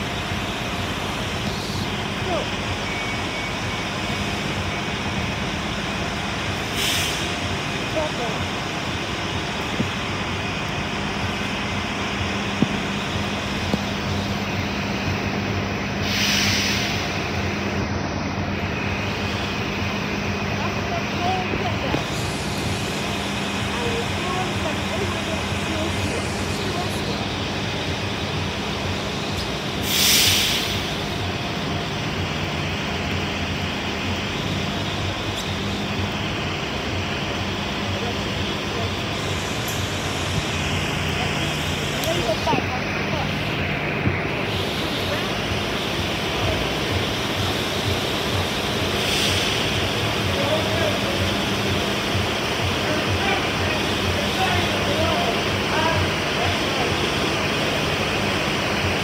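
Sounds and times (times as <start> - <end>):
diesel buses idling: 0.0 - 59.0
compressed air hiss: 6.6 - 7.4, 16.0 - 17.4, 29.8 - 31.2, 44.3 - 46.2, 48.8 - 50.0
short burst of hiss: 6.8 - 7.3, 16.0 - 17.2, 29.8 - 30.9.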